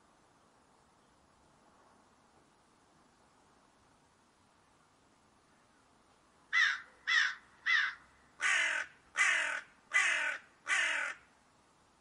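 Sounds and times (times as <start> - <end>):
crow cawing: 6.5 - 11.3.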